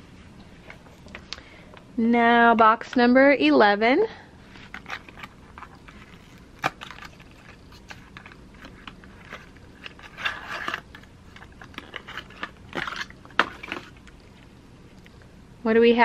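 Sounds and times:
paperboard box being opened: 0:04.6 - 0:14.0
card flaps clicking and crinkling: 0:04.6 - 0:14.2.

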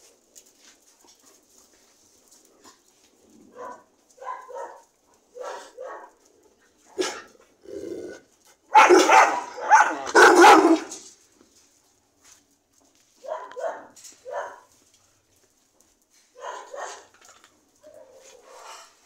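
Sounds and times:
dogs barking: 0:03.5 - 0:06.3, 0:06.9 - 0:07.3, 0:08.6 - 0:11.1, 0:13.2 - 0:14.8, 0:16.4 - 0:18.9.

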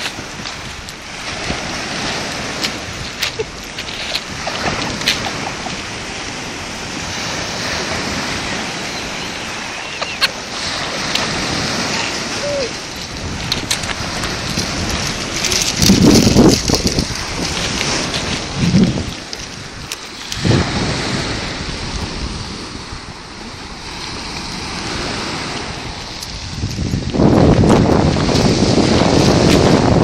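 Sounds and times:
surf breaking on pebble beach: 0:00.0 - 0:30.0
wind on microphone: 0:00.0 - 0:30.0.

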